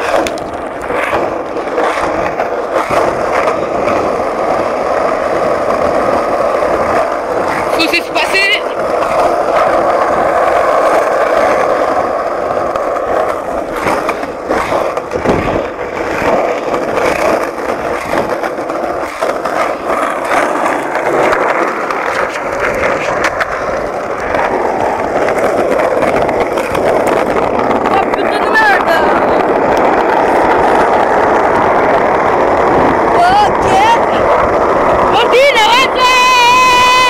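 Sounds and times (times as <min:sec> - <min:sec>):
skateboard clicks and knocks: 0:00.0 - 0:37.0
skateboard wheels rolling on asphalt: 0:00.0 - 0:37.0.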